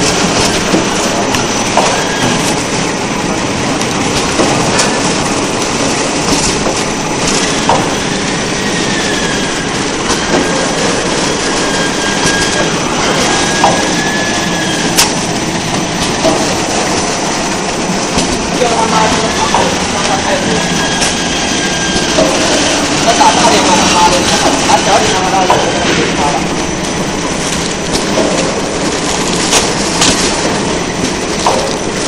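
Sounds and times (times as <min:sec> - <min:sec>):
machine clattering with sharp clicks: 0:00.0 - 0:26.4, 0:27.0 - 0:32.0.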